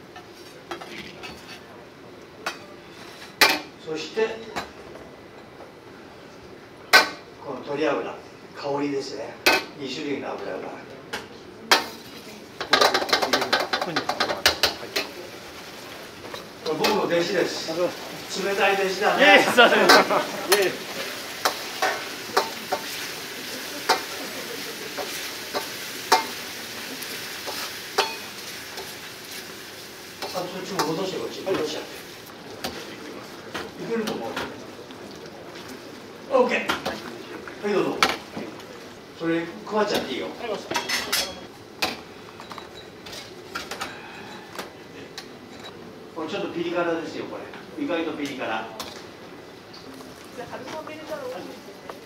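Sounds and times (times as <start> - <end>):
metal utensils clinking on wok: 11.7 - 15.2, 19.7 - 23.1, 23.8 - 24.3, 24.9 - 26.5, 27.3 - 29.0, 40.7 - 43.8
sauce sizzling: 14.6 - 32.8.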